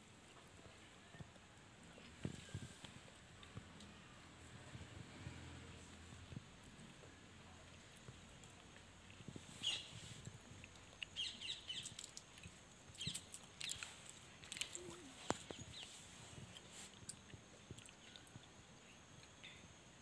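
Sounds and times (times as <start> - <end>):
faint bird chirps: 9.5 - 10.1, 11.1 - 12.1, 13.0 - 13.8.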